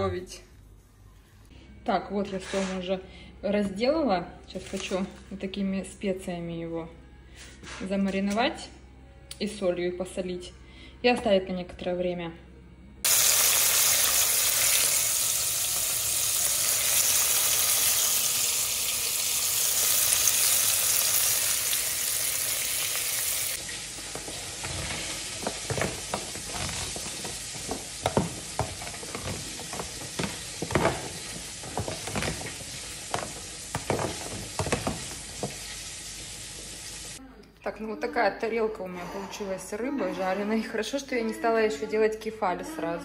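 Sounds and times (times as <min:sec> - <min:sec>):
fish sizzling in oil: 0:13.0 - 0:37.2.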